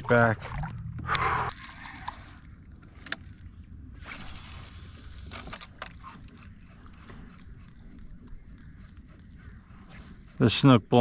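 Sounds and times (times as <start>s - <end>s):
hiss: 4.0s - 5.5s
fishing rod and reel clicks: 5.0s - 10.6s.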